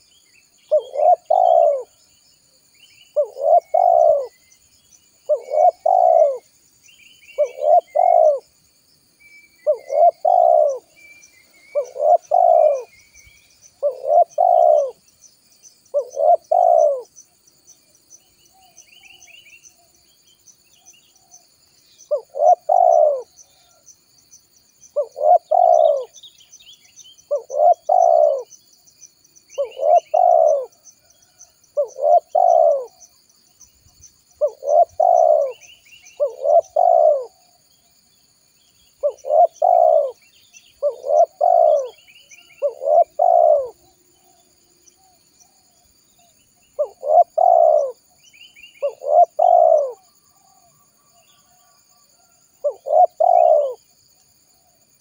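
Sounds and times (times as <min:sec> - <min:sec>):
faint bird chirps: 0:00.0 - 0:55.0
dove cooing: 0:00.7 - 0:02.0, 0:03.2 - 0:04.4, 0:05.3 - 0:06.5, 0:07.4 - 0:08.5, 0:09.6 - 0:11.0, 0:11.7 - 0:13.0, 0:13.8 - 0:15.0, 0:15.9 - 0:17.1, 0:22.1 - 0:23.8, 0:25.0 - 0:26.2, 0:27.3 - 0:28.5, 0:29.6 - 0:33.0, 0:34.4 - 0:37.5, 0:39.0 - 0:45.6, 0:46.8 - 0:48.1, 0:48.8 - 0:50.7, 0:51.4 - 0:53.8.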